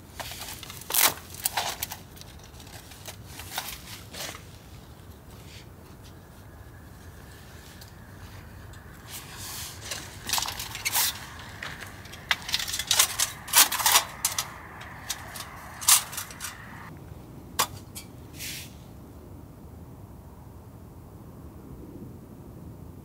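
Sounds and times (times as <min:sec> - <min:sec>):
objects being handled: 0:00.1 - 0:16.9
low rushing noise: 0:04.8 - 0:17.4.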